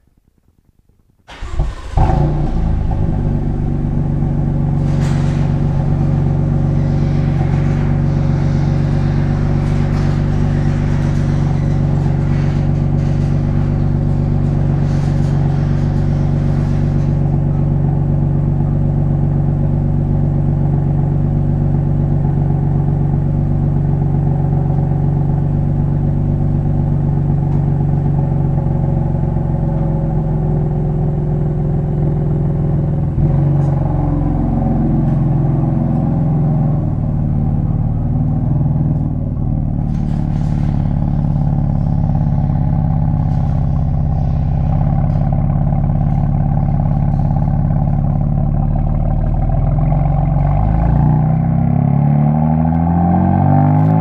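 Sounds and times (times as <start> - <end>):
car engine starting and idling: 1.2 - 54.0.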